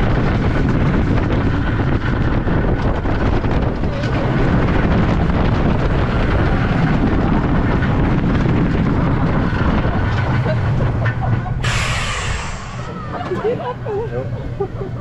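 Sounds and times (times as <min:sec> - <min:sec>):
roller coaster rumbling on track: 0:00.0 - 0:15.0
wind on microphone: 0:00.0 - 0:15.0
sharp hiss: 0:11.6 - 0:13.0.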